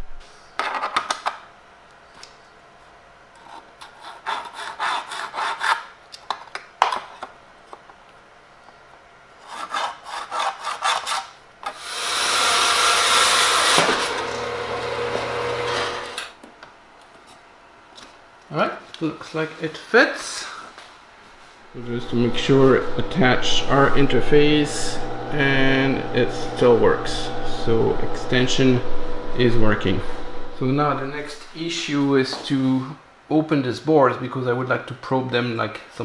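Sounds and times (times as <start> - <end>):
continuous sawing: 9.4 - 16.3, 21.7 - 31.5
steady low hum: 11.4 - 33.5.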